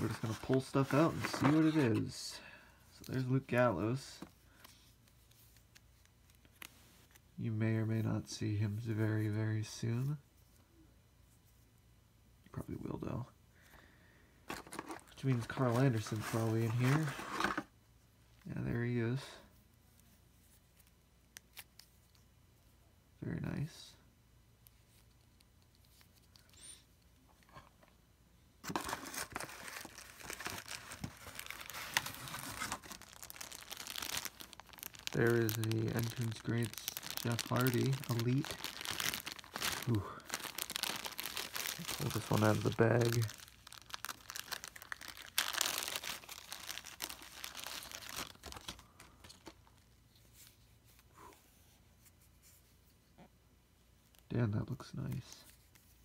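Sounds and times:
plastic bag crinkling: 0.0 - 2.2, 14.5 - 17.7, 28.6 - 49.9.

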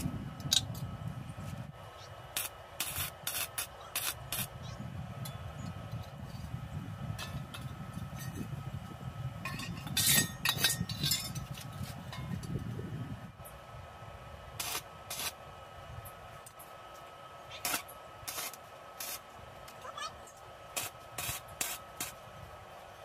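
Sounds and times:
welder crackling: 1.5 - 13.5, 14.5 - 15.5, 16.2 - 22.7
steel tubing clanking: 9.4 - 12.6.

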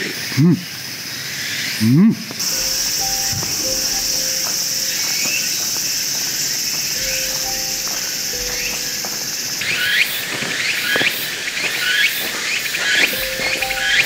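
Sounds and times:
insects droning: 0.0 - 14.0
faint background music: 2.4 - 10.3, 13.1 - 14.0
footsteps on leaf litter: 2.6 - 14.0.

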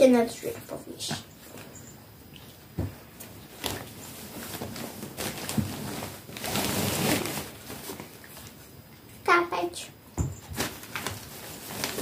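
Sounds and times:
packaging rustling: 3.5 - 8.6, 10.5 - 12.0.

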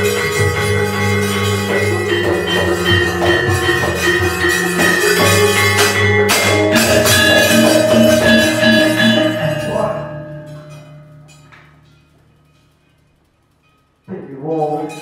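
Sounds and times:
drum: 0.0 - 10.7
metallophones and gongs ringing: 0.0 - 15.0.

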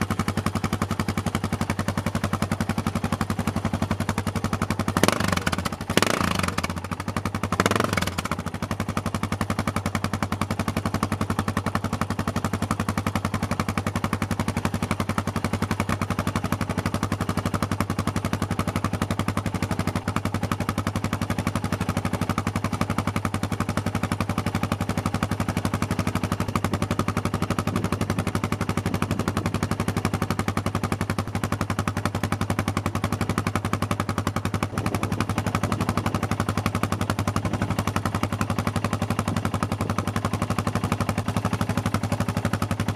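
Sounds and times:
motorcycle engine idling: 0.0 - 42.9.

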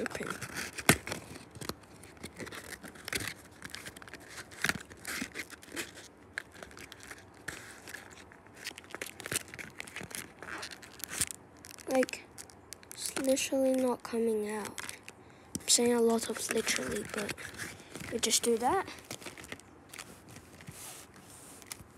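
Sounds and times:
foil packs crinkling: 0.0 - 21.9.

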